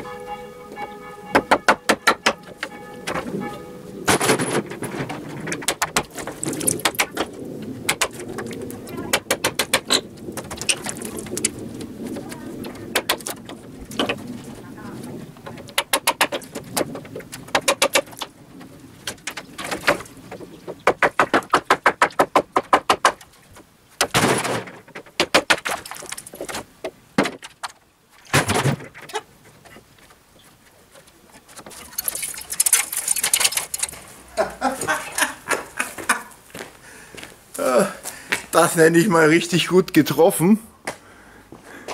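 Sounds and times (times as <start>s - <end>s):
hammer knocking wooden battens: 1.3s - 3.3s, 4.1s - 14.4s, 15.3s - 29.9s
heavy thud of wood dropping: 4.0s - 8.5s, 19.0s - 23.2s, 24.0s - 29.1s.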